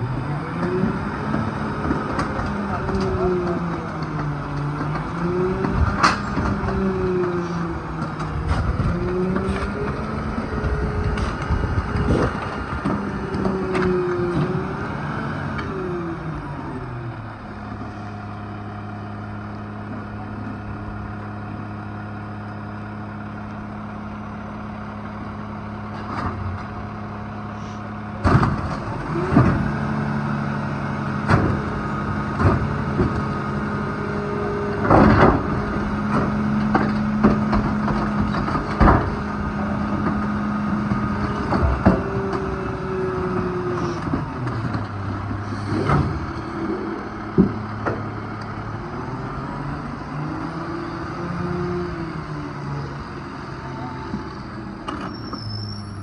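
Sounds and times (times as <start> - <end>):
garbage truck engine idling: 1.2 - 56.0.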